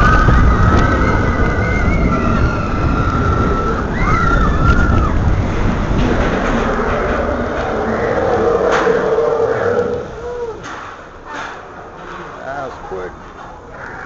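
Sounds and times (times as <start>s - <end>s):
roller coaster rumbling: 0.0s - 14.0s.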